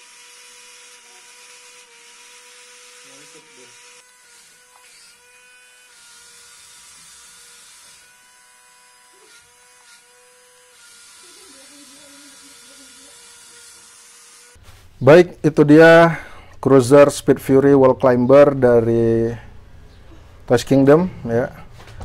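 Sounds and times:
toy car electric whine with hiss: 0.0 - 14.6.

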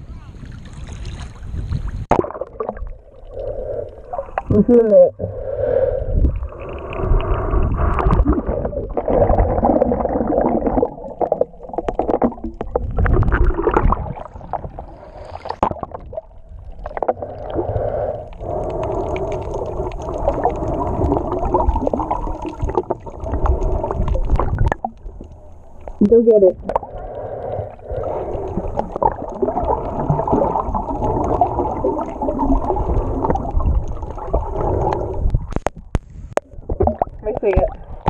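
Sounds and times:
muffled underwater water movement: 0.0 - 38.0.

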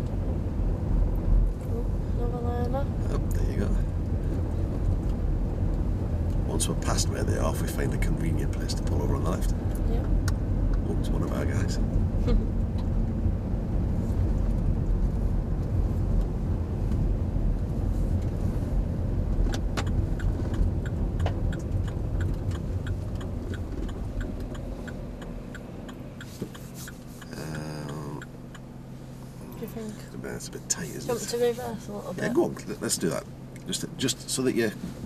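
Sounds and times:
car road and engine noise: 0.0 - 35.0
turn signal ticking: 19.2 - 30.2.

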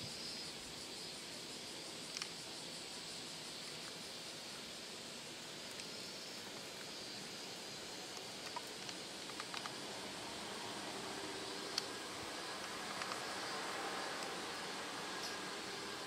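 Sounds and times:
outdoor background hiss: 0.0 - 16.0
faint ticks: 2.0 - 2.4, 5.6 - 7.0, 8.1 - 9.8, 11.6 - 11.9, 12.5 - 13.5.

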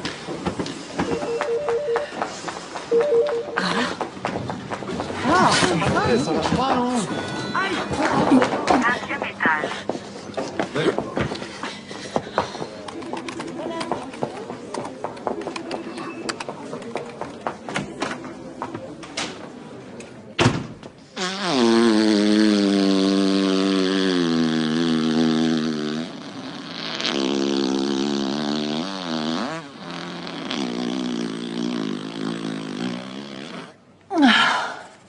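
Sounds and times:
long drawn-out fart: 21.2 - 33.9.

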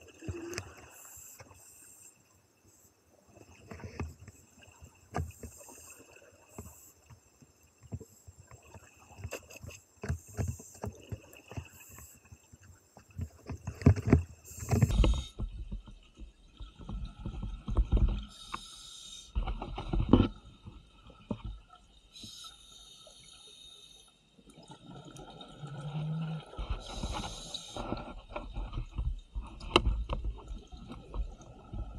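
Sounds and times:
hissing regulator inhale: 18.3 - 19.4, 22.2 - 24.2, 26.8 - 27.9.

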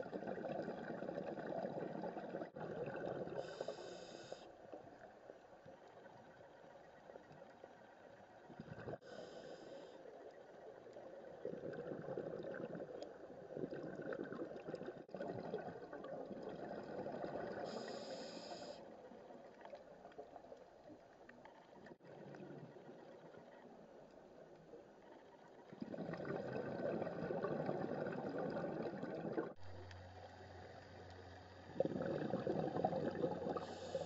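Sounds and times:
underwater bubbles gurgling: 0.0 - 34.0.

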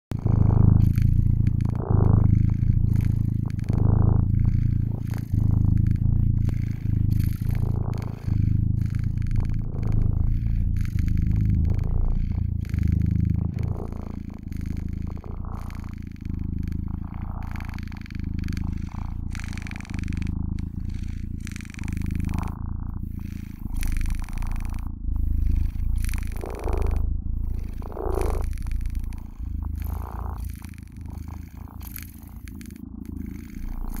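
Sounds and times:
cat purring: 0.0 - 34.0.

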